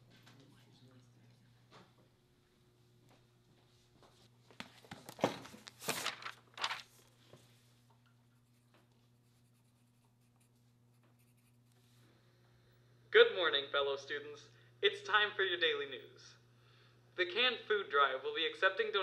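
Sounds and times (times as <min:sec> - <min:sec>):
faint low room hum: 0:00.0 - 0:19.0
pencil scratching on paper: 0:08.4 - 0:11.8.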